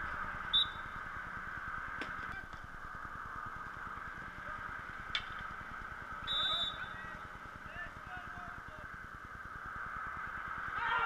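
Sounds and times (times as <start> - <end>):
steady ambient hiss: 0.0 - 11.0
whistle blast: 0.5 - 1.0, 6.2 - 7.1.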